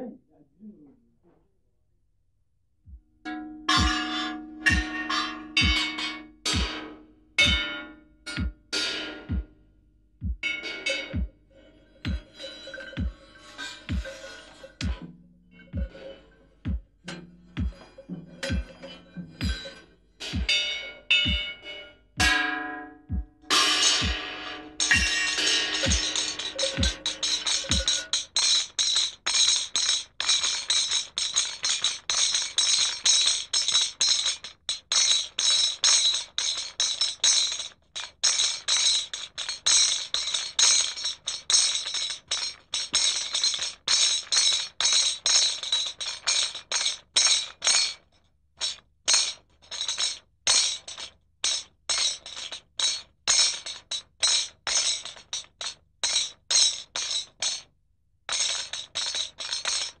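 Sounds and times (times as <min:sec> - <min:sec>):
rhythmic jingling shaker: 0:23.5 - 0:48.0, 0:48.6 - 0:57.7, 0:58.3 - 1:00.0.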